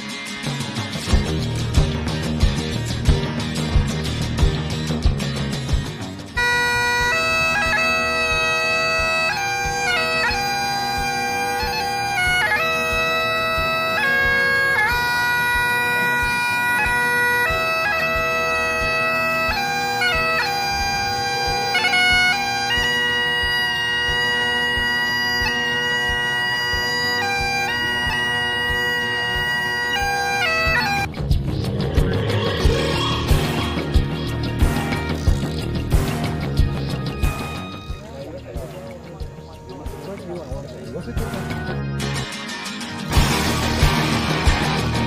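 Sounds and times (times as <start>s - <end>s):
bagpipe drones: 6.2s - 45.0s
bagpipe chanter melody: 6.4s - 31.2s, 31.8s - 35.6s, 36.9s - 38.8s.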